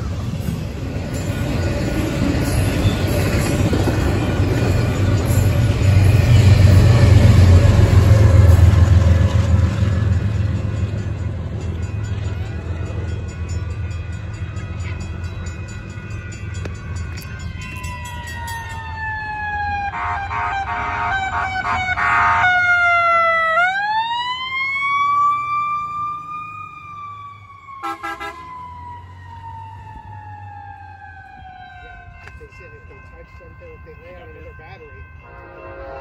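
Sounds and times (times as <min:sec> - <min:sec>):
siren wailing: 0:17.2 - 0:33.4
truck horn blasts: 0:19.9 - 0:22.6, 0:27.8 - 0:28.5, 0:35.3 - 0:36.0.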